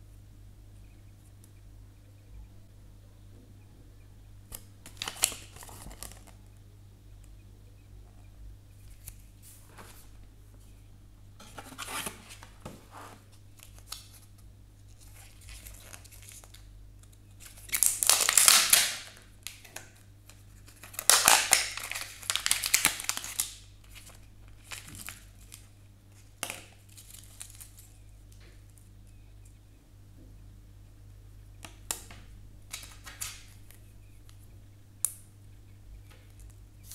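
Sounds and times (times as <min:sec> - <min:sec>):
plastic packaging crinkling and tearing: 0:04.5 - 0:06.4, 0:13.6 - 0:19.9, 0:20.6 - 0:28.0, 0:32.7 - 0:33.7.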